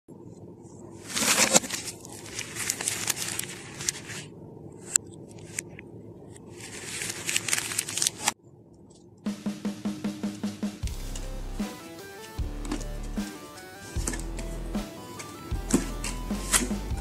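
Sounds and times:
plastic wrappers crinkling: 0:01.0 - 0:05.7, 0:06.4 - 0:08.4.

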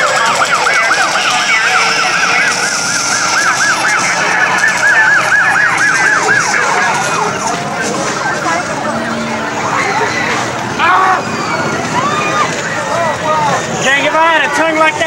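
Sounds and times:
siren yelping: 0:00.0 - 0:13.7.

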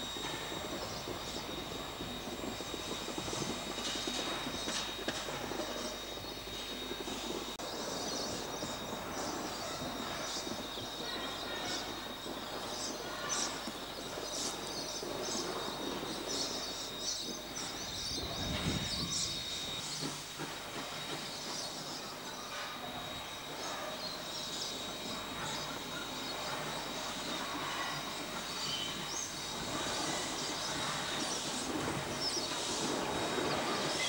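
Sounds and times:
steam hiss: 0:00.0 - 0:34.0
steam locomotive exhaust beats: 0:00.0 - 0:34.0.

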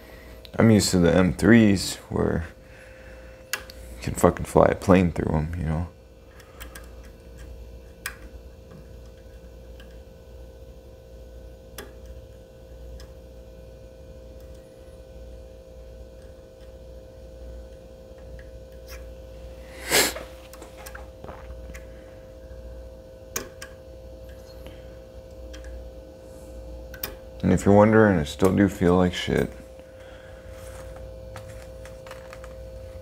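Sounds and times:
steady low hum: 0:00.0 - 0:33.0.

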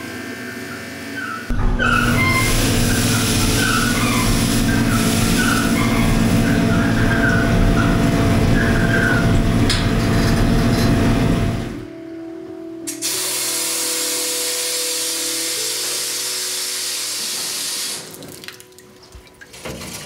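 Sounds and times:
water jets spraying: 0:01.5 - 0:09.8
low pump hum: 0:01.5 - 0:11.9.

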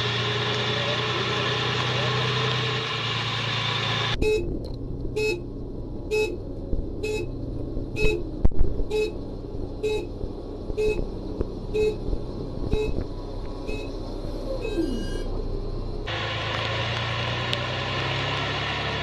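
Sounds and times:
engine and road noise: 0:00.0 - 0:19.0
truck engine running: 0:00.0 - 0:19.0
electronic warning beeps: 0:07.0 - 0:07.3, 0:08.0 - 0:08.2, 0:09.8 - 0:10.1, 0:10.8 - 0:11.0, 0:11.7 - 0:12.0, 0:12.7 - 0:13.0, 0:13.7 - 0:13.9.

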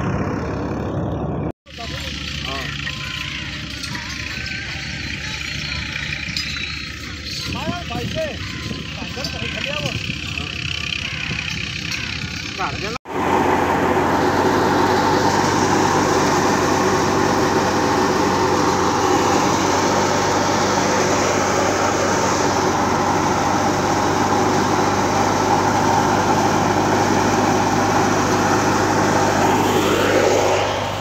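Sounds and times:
tractor engine hum: 0:00.0 - 0:31.0
thresher rushing noise: 0:13.1 - 0:31.0.

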